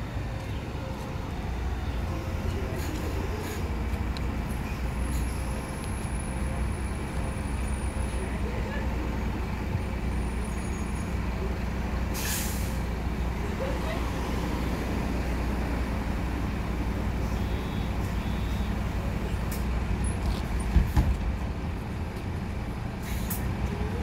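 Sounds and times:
bus engine idling: 0.0s - 24.0s.

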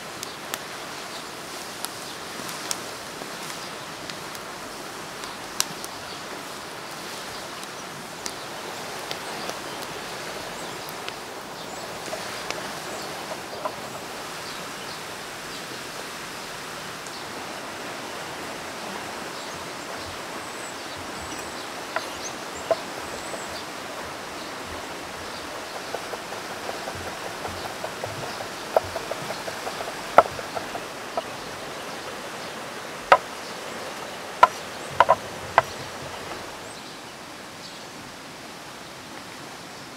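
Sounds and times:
river flowing: 0.0s - 39.9s
wood fire crackling: 1.7s - 14.8s, 18.1s - 36.6s
knife chopping on wooden board: 25.5s - 30.8s.

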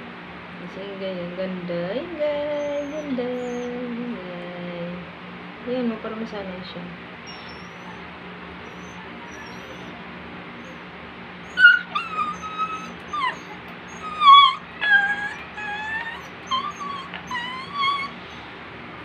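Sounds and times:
puppy whimpering: 2.4s - 3.9s, 7.2s - 18.5s.

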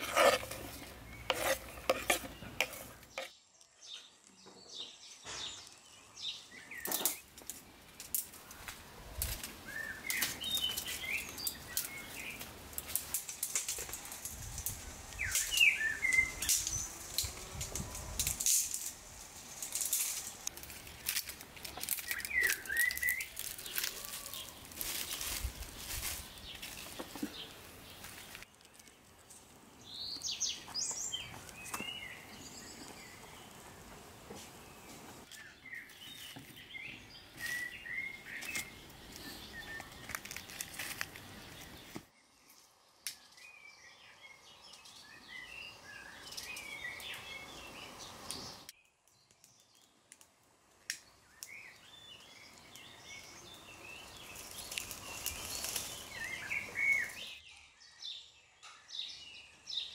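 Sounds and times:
small birds chirping: 0.0s - 18.9s, 19.7s - 59.9s
twigs rustling and snapping: 6.8s - 29.6s, 37.4s - 43.5s, 48.3s - 57.3s.

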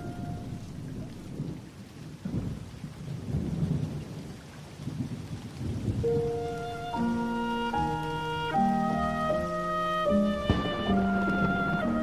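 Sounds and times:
wind buffeting microphone: 0.0s - 6.9s, 10.4s - 12.0s.

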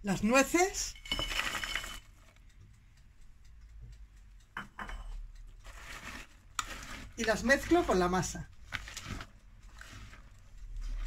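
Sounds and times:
soft stirring of batter: 0.7s - 11.0s
nuts rattling into bowl: 1.0s - 2.1s
whisk tapping bowl: 5.6s - 11.0s.

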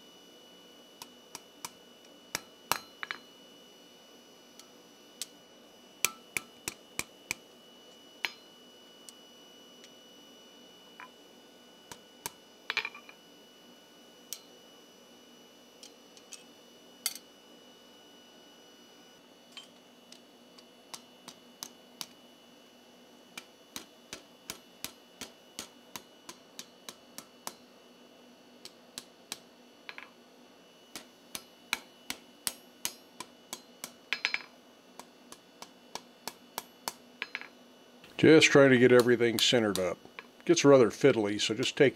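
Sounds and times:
hammer ringing on anvil: 2.4s - 3.3s, 6.0s - 6.5s, 8.2s - 8.5s, 12.7s - 13.2s, 32.5s - 34.5s, 36.8s - 37.6s.

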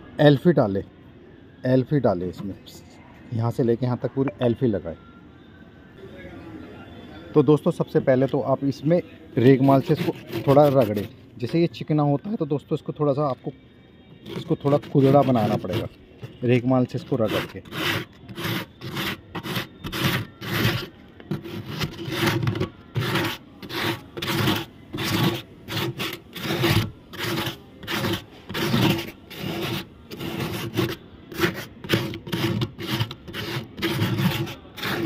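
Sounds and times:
sandpaper scratching plastic: 9.6s - 11.1s, 14.2s - 35.0s.

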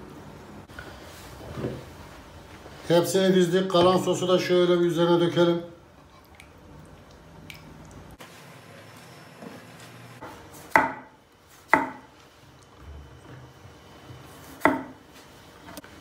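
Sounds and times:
knife striking wooden cutting board: 10.7s - 11.1s, 11.7s - 12.1s.

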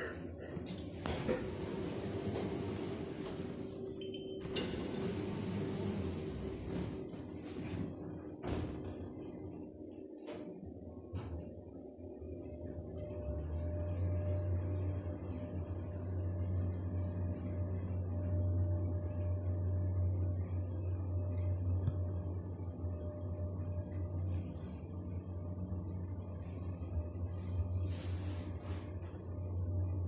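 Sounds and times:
lift car humming: 0.6s - 8.4s.

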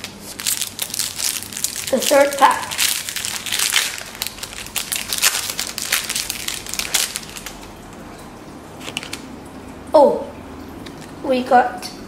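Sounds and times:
foil wrapper crinkling: 0.0s - 8.0s, 8.8s - 9.3s.

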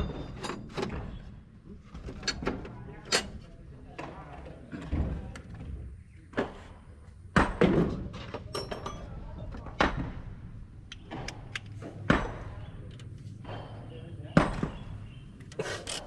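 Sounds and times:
metal tools clinking and knocking: 0.0s - 3.6s, 8.2s - 9.7s.

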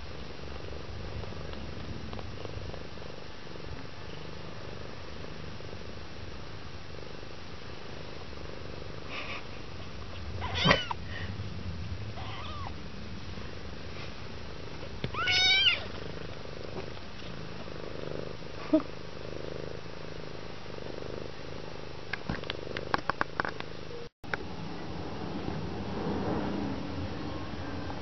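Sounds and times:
cat purring: 0.0s - 24.0s
high-pitched kitten mews: 10.4s - 11.0s, 12.2s - 12.7s, 15.1s - 15.9s.

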